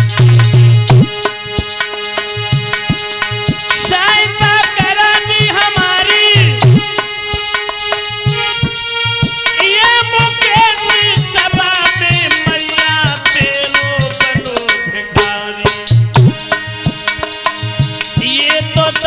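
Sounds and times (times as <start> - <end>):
hand drum beat: 0.0 - 19.0
sustained instrumental notes: 0.0 - 19.0
man singing into a microphone: 3.7 - 7.2, 9.6 - 16.5, 18.1 - 19.0.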